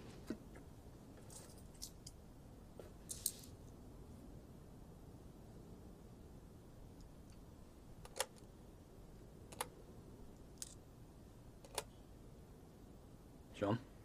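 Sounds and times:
coins clicking on wood: 10.6s - 10.8s.

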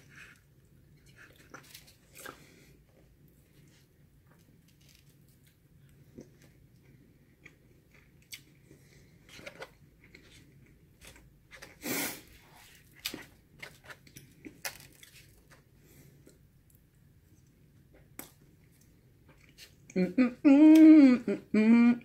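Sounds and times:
chewing and eating mouth sounds: 0.0s - 11.8s.

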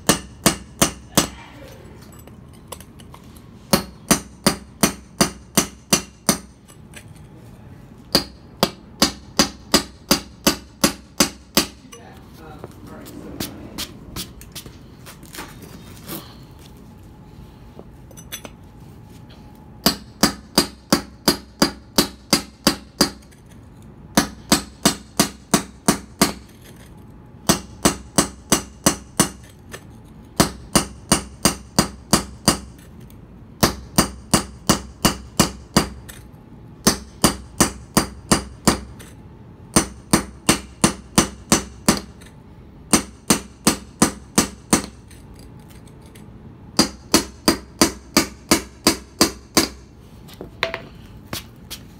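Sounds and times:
hammer striking metal chisel: 0.0s - 1.4s, 3.7s - 7.3s, 8.1s - 11.9s, 19.8s - 23.5s, 27.5s - 29.8s, 30.4s - 32.9s, 33.6s - 36.2s, 36.8s - 39.1s, 39.7s - 42.3s, 42.9s - 45.9s, 46.8s - 49.8s.

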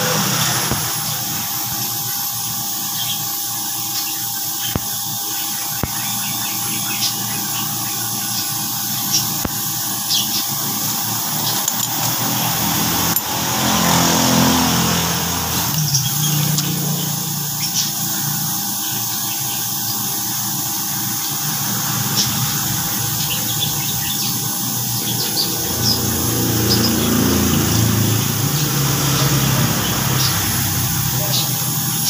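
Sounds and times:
light metallic clicks and clinks: 11.5s - 12.2s.

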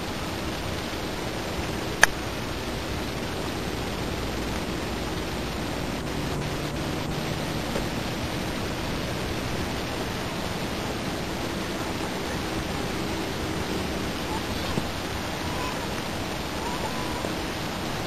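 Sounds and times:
steady hiss: 0.0s - 18.0s.

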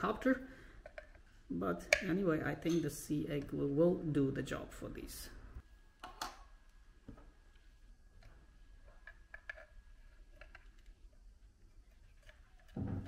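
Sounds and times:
plastic parts clicking: 8.9s - 11.0s.

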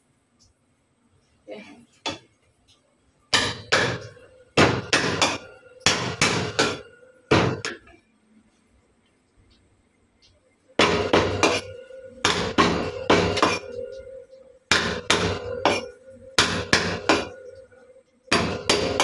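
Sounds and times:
cleaver chopping on wooden block: 14.7s - 15.8s, 16.4s - 17.3s, 18.3s - 19.0s.

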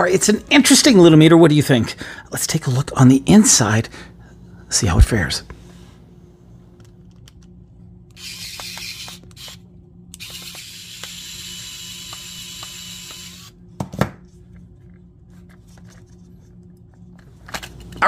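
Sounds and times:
electric screwdriver motor whine: 8.2s - 9.6s, 10.2s - 13.6s.

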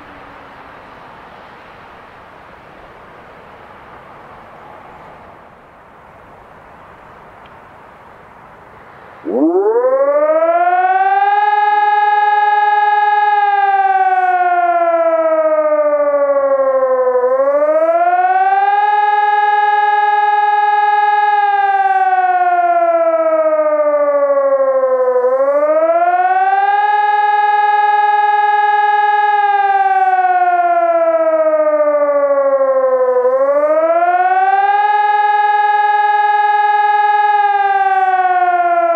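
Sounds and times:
electronic siren wailing: 9.2s - 38.9s.

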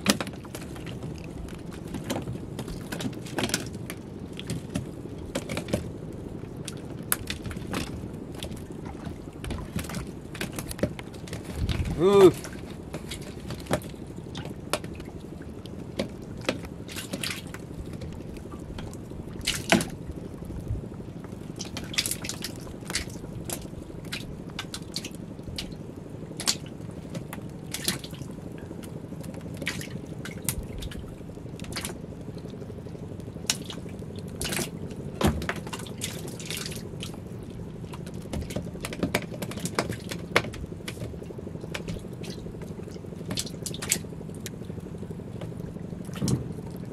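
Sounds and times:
water dripping and splashing: 0.0s - 46.9s
light knocks on wooden boat: 46.2s - 46.6s.

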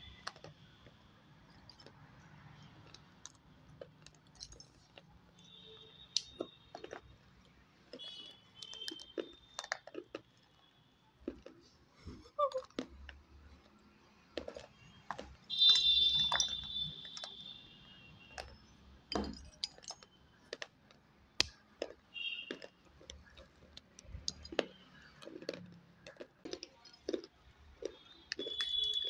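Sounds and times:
crunching pottery pieces: 0.0s - 10.6s, 11.2s - 17.4s, 18.3s - 29.0s.

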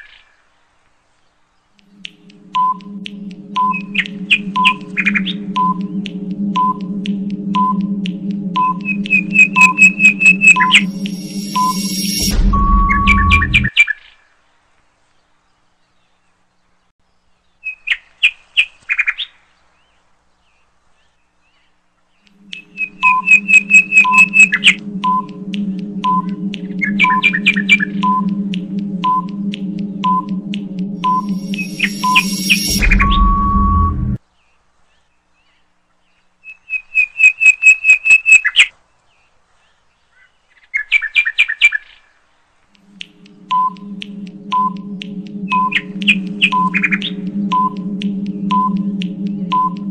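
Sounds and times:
low steady drone: 1.8s - 13.7s, 22.3s - 34.2s, 42.8s - 49.9s
rapid chirping: 1.8s - 13.7s, 22.3s - 33.4s, 42.8s - 49.9s
steady low hum: 1.8s - 13.7s, 22.3s - 34.2s, 42.8s - 49.9s
short timer beeps: 2.0s - 13.7s, 22.4s - 34.2s
bird chirps: 8.6s - 13.7s, 22.2s - 25.4s, 31.0s - 33.3s.

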